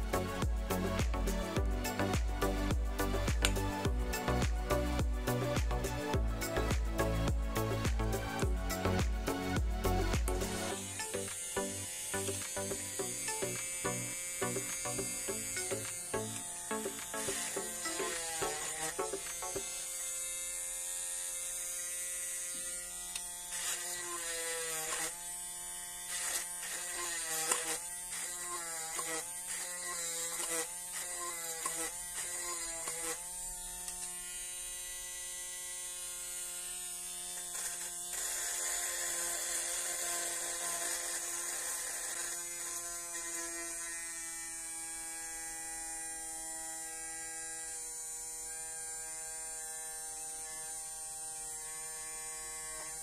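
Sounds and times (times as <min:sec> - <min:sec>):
small electric drill whining: 0:00.1 - 0:53.0.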